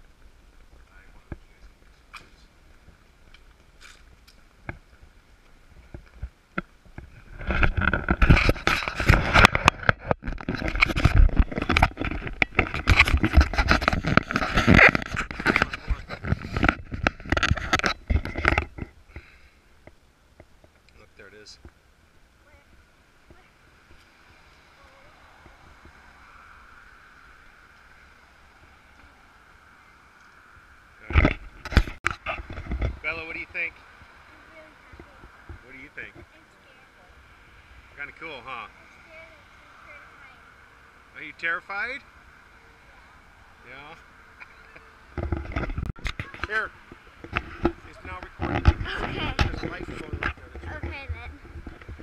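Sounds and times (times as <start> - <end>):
low traffic rumble: 0.0 - 52.0
rubbing and knocking on microphone: 5.7 - 20.8, 31.0 - 33.3, 44.4 - 52.0.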